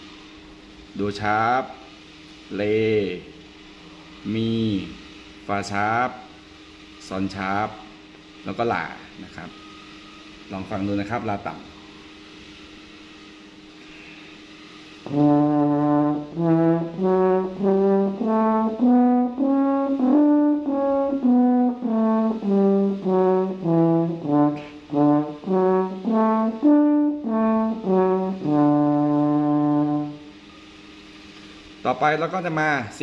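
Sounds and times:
french horn playing scale: 15.0s - 30.3s.

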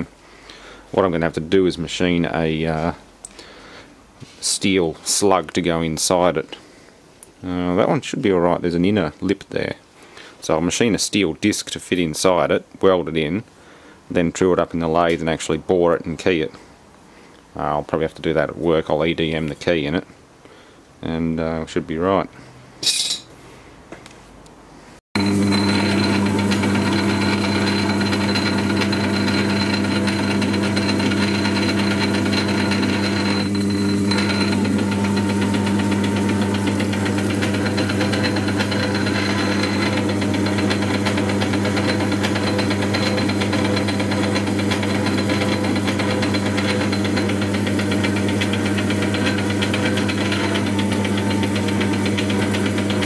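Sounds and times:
lathe motor hum: 25.2s - 53.0s.

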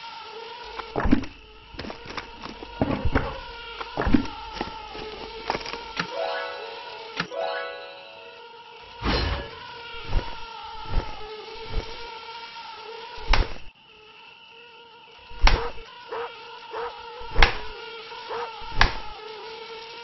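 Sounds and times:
mosquito whining: 0.0s - 20.0s
newspaper slaps against wall: 13.3s - 13.7s, 15.4s - 15.8s, 17.3s - 17.7s, 18.7s - 19.1s.

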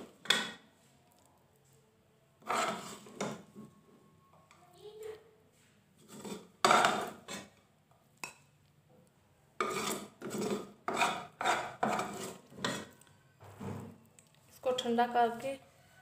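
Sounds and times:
spoon scraping a glass bowl: 2.4s - 3.4s, 6.0s - 7.6s, 9.6s - 13.1s.

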